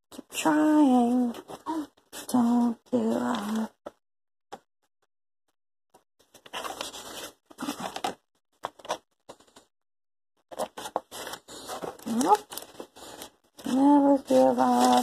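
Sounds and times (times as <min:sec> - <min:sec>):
plastic container rustling and scraping: 0:06.2 - 0:09.6, 0:10.5 - 0:15.0.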